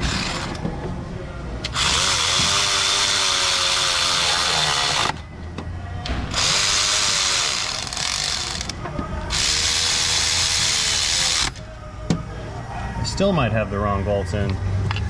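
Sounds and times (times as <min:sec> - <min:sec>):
electric ratchet motor whine: 0:01.7 - 0:05.2, 0:06.3 - 0:11.6.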